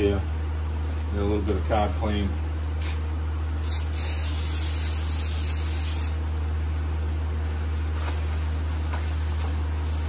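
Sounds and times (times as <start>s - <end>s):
steady low hum: 0.0s - 10.0s
aerosol spray hissing: 3.6s - 6.1s.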